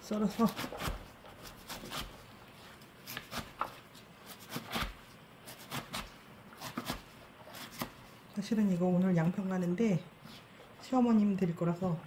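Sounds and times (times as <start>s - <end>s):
knife chopping on wooden board: 0.4s - 2.1s, 3.1s - 8.0s.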